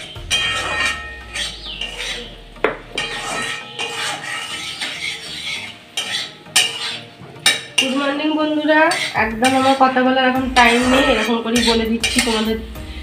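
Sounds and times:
metal clanks against pan: 0.0s - 8.2s, 8.9s - 9.9s, 10.5s - 12.6s
spatula stirring and scraping wok: 0.0s - 13.0s.

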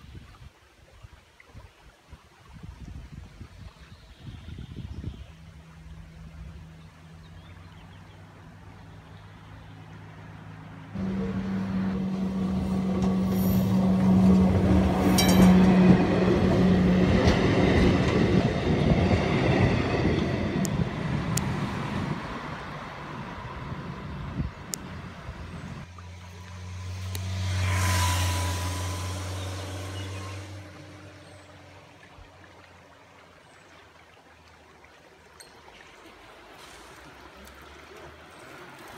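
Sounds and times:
motorcycle passing: 9.8s - 18.5s, 19.6s - 32.0s
tram passing: 10.3s - 31.8s
tram wheels rumbling on rails: 11.0s - 25.4s.

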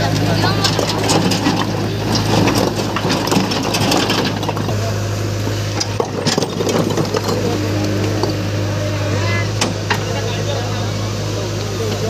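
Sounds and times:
truck engine running: 0.0s - 12.0s
rocks clattering onto pile: 0.3s - 5.0s, 5.7s - 8.5s.

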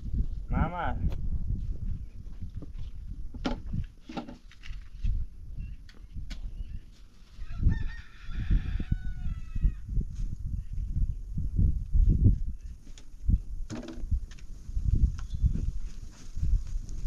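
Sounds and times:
rooster crowing: 7.4s - 9.8s.

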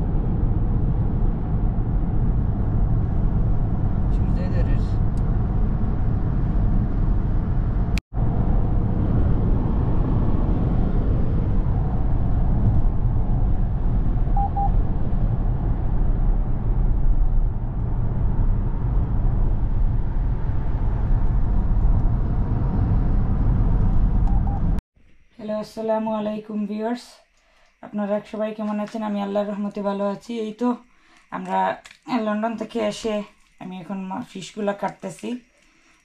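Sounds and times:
car road and tyre noise: 0.0s - 24.8s
short beeps: 14.4s - 14.8s, 24.3s - 24.6s.

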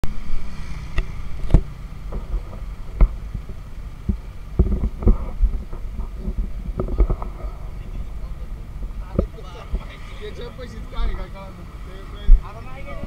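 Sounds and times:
street traffic hum: 0.0s - 13.0s
camera jostling thumps: 1.4s - 7.6s.

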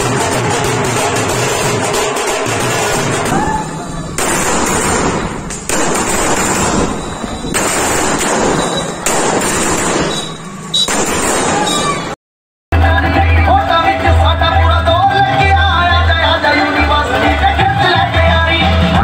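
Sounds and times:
firecrackers crackling: 0.0s - 12.2s.

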